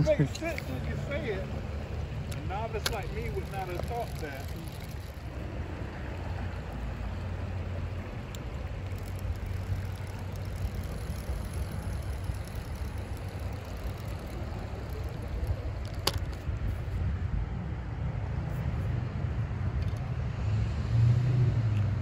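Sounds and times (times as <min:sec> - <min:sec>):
road traffic rumble: 0:00.0 - 0:22.0
sharp click: 0:15.8 - 0:16.5.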